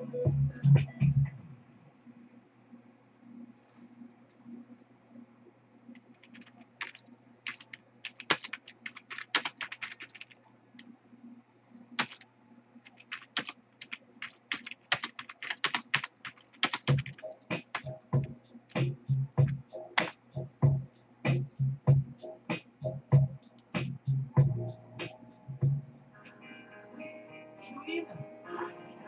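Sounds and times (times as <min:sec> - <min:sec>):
music with low beat: 0:00.0 - 0:01.4, 0:16.9 - 0:26.0
keyboard typing: 0:05.9 - 0:10.9, 0:11.9 - 0:20.3.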